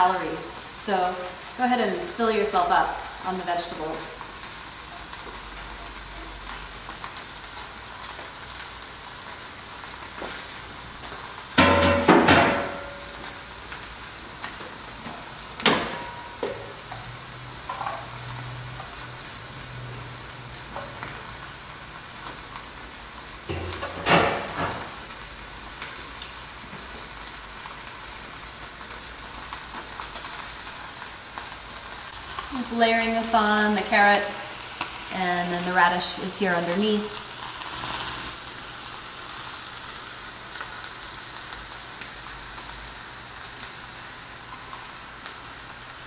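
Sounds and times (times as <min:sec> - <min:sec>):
chicken sizzling on grill: 0:00.0 - 0:46.0
dishes clattering: 0:11.6 - 0:13.1, 0:23.5 - 0:24.9.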